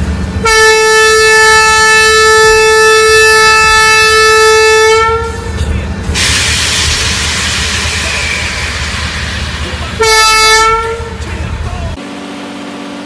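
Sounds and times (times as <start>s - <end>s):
locomotive horn: 0.4s - 5.6s, 10.0s - 11.3s
train hissing rush: 1.6s - 12.0s.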